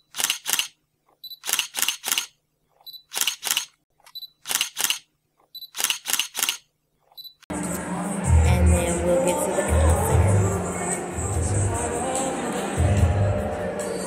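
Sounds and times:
camera shutter clicks: 0.1 - 0.8, 1.4 - 2.4, 3.1 - 5.1, 5.7 - 6.7.

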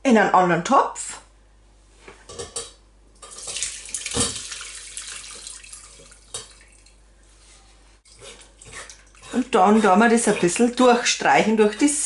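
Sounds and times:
sauce splashing through sieve: 3.3 - 7.0.

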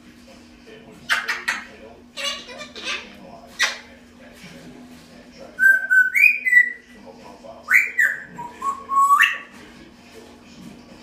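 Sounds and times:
parrot whistling: 5.6 - 6.8, 7.7 - 9.5.

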